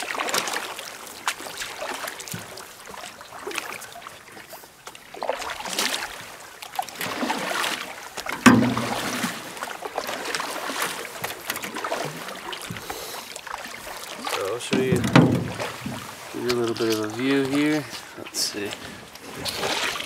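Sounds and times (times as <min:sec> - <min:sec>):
paddle swishing through water: 0:00.0 - 0:20.0
sharp thump: 0:08.4 - 0:09.1, 0:14.7 - 0:16.0.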